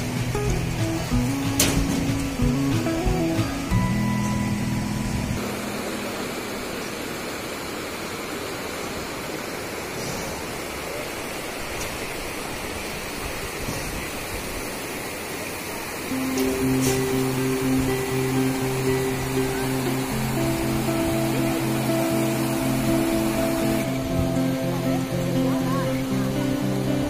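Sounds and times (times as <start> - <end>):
guitar music: 0.0 - 7.2, 16.1 - 27.0
river rushing over stones: 0.0 - 27.0.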